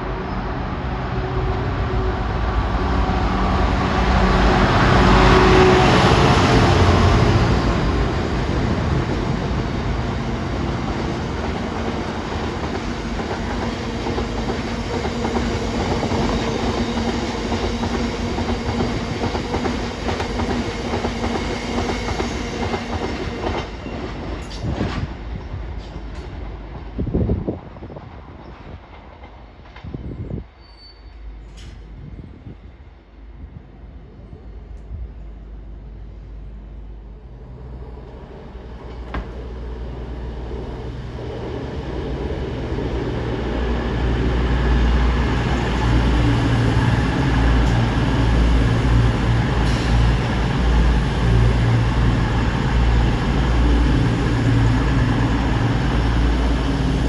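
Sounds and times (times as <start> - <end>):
diesel locomotive engine passing: 0.0 - 57.0.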